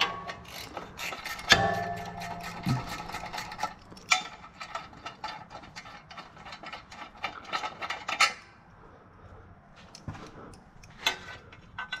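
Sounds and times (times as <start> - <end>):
hand ratchet clicking: 0.0 - 8.4.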